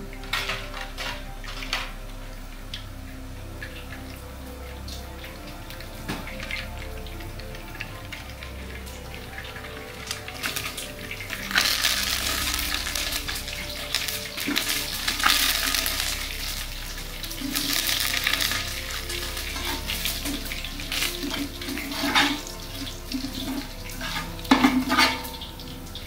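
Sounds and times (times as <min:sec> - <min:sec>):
spices sizzling in hot oil: 0:00.0 - 0:26.0
metal spatula scraping pot: 0:17.4 - 0:25.5.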